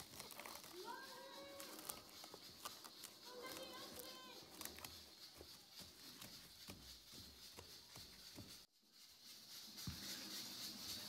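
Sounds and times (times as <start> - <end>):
cling film crinkling: 0.0 - 8.7.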